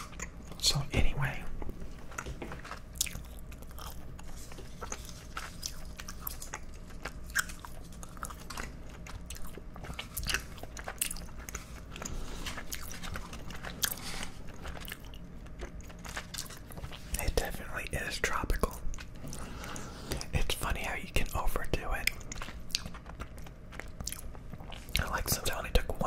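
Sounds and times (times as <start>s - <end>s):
gum chewing mouth clicks: 22.0s - 25.3s.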